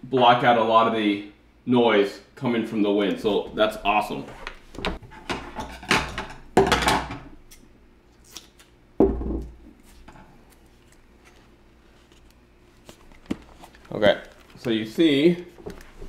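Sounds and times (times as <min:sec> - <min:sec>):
small clicks and rustles: 0:10.8 - 0:14.8.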